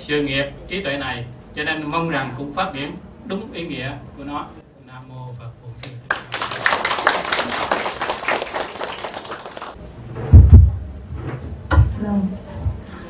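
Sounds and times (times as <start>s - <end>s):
audience applauding: 6.1s - 9.8s.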